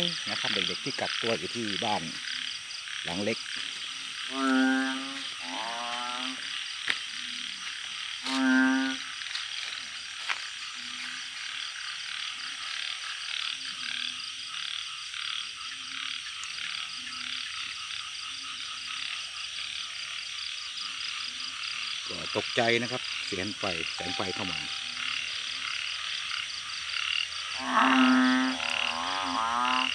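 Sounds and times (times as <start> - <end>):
frogs croaking: 0.0 - 29.9
high-pitched chorus: 24.0 - 25.0.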